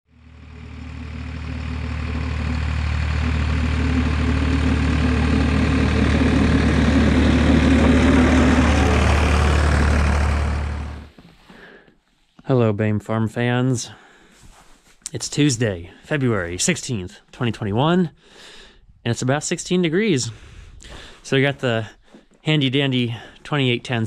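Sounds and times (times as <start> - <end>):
tractor engine running: 0.1 - 11.2
plow blade pushing snow: 0.2 - 11.1.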